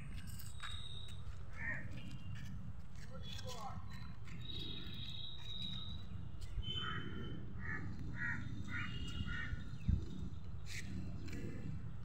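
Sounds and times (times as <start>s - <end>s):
steady low rumble: 6.1s - 12.0s
crow cawing: 7.6s - 9.6s.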